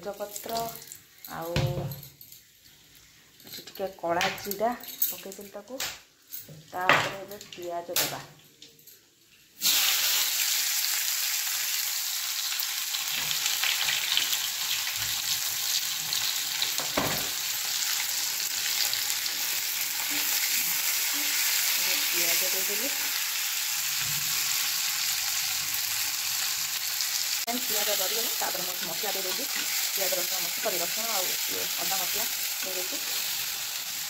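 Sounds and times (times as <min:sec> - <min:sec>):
onions sizzling in hot oil: 0:00.0 - 0:01.5, 0:09.4 - 0:34.0.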